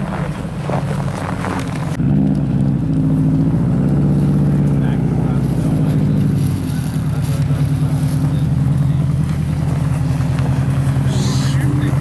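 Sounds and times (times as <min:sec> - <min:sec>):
rally car engine idling: 0:00.0 - 0:12.0.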